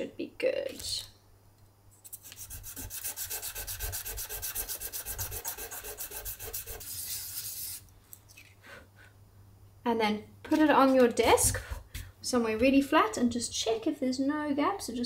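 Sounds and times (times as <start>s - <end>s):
metal wire sanding on sandpaper: 2.0s - 7.9s.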